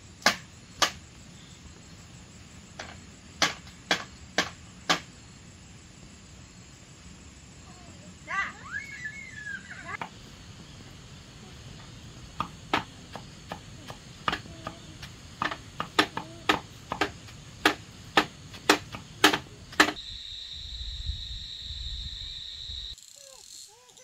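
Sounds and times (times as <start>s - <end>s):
high insect drone: 0.0s - 24.0s
blade chopping on wooden block: 15.4s - 20.0s
low wind rumble: 19.5s - 23.0s.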